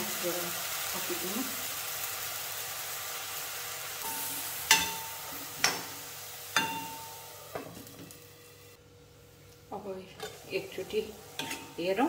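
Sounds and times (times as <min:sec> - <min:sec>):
vegetables sizzling in a pan: 0:00.0 - 0:12.0
metal ladle stirring: 0:11.3 - 0:11.8.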